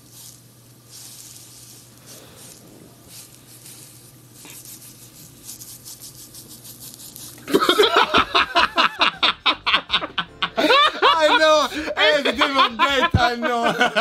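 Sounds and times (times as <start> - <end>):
food sizzling in a pan: 0.0 - 7.8
man laughing: 7.5 - 14.0.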